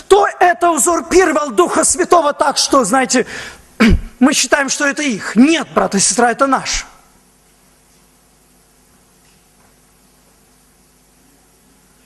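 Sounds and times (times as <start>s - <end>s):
low electrical hum: 0.0s - 12.0s
faint steady hiss: 2.5s - 12.0s.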